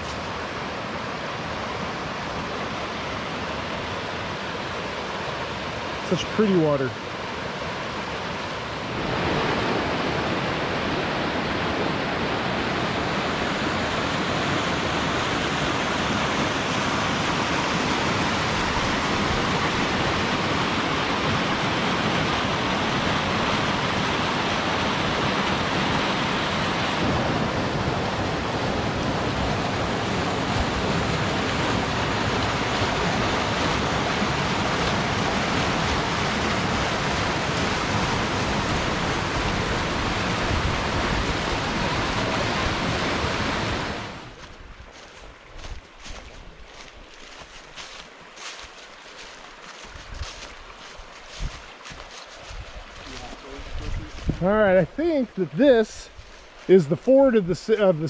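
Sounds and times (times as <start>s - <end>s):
river rapids rushing: 0.0s - 58.0s.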